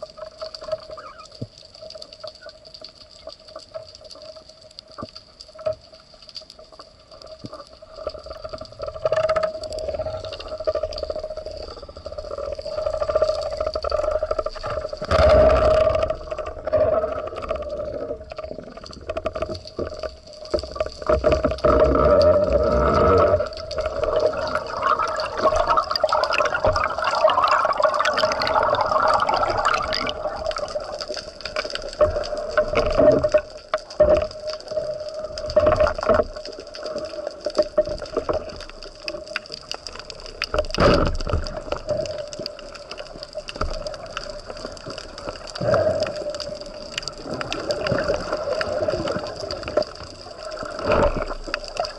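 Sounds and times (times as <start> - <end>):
underwater water rushing and gurgling: 0.0 - 51.9.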